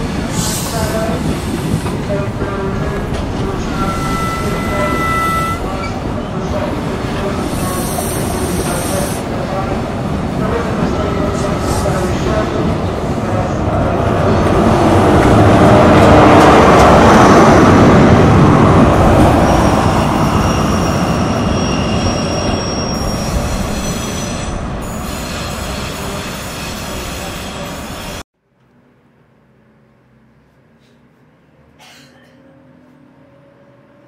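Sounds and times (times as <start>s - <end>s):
high wheel squeal: 3.6s - 6.3s, 19.4s - 28.2s.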